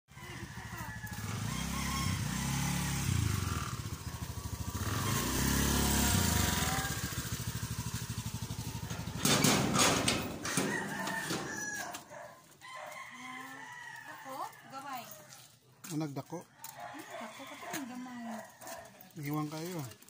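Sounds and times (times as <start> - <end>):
scooter engine running: 0.1 - 12.8
rooster crowing: 0.1 - 15.5, 16.4 - 19.0
engine knocks: 2.3 - 12.2.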